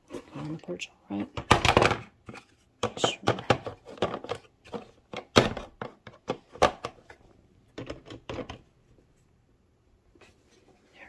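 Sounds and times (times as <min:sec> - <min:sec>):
plastic toy parts clicking and knocking: 0:01.4 - 0:02.1, 0:02.8 - 0:07.2, 0:07.8 - 0:08.6.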